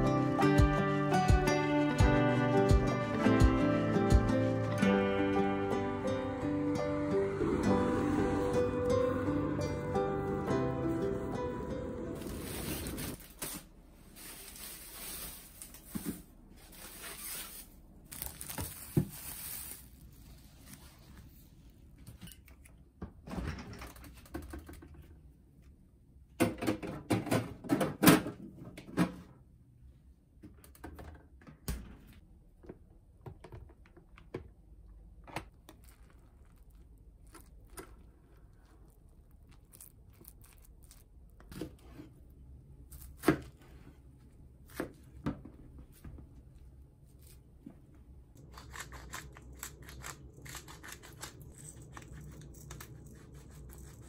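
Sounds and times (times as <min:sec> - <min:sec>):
plastic packaging crinkling: 0:16.7 - 0:20.8, 0:35.5 - 0:41.5.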